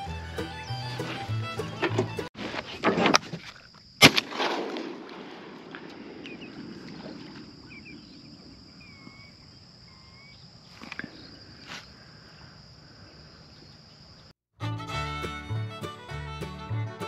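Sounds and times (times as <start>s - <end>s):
faint bird chirps: 6.2s - 11.6s.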